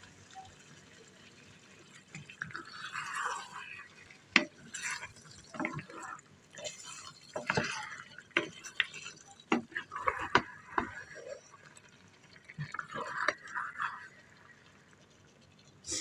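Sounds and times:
spatula scraping frying pan: 0:06.6 - 0:11.5.

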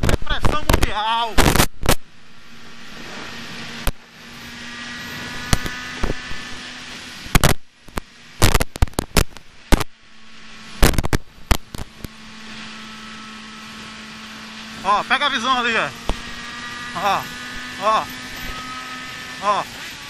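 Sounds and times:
wind buffeting microphone pops: 0:00.0 - 0:02.1, 0:07.2 - 0:10.0, 0:10.8 - 0:12.1
motorcycle engine cruising: 0:01.4 - 0:09.9, 0:10.7 - 0:20.0.

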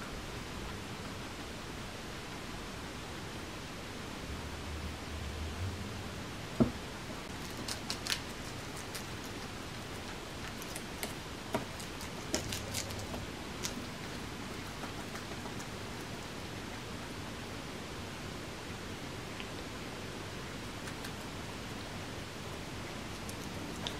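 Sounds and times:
guinea pigs crunching lettuce: 0:07.3 - 0:17.0, 0:20.4 - 0:23.9.

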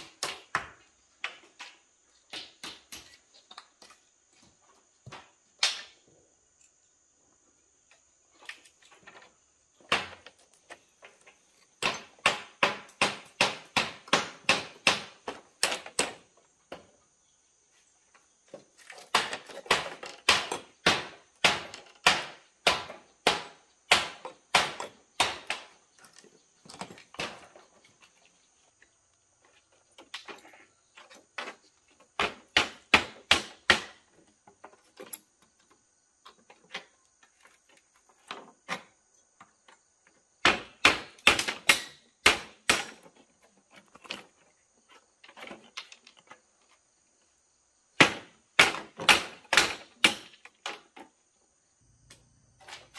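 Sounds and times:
hammer driving nails: 0:11.8 - 0:16.2, 0:19.0 - 0:25.7, 0:48.0 - 0:50.5.

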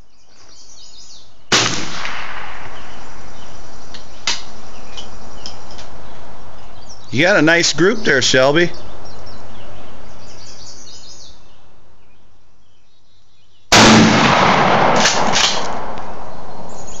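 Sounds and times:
shotgun blast: 0:01.5 - 0:02.8, 0:13.7 - 0:16.3
steady loud noise: 0:13.7 - 0:17.0.

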